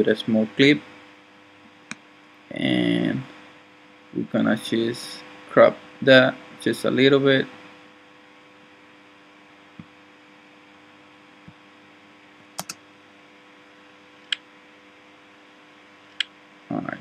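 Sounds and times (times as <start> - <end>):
low electrical hum: 0.0 - 17.0
computer mouse clicks: 12.6 - 12.8.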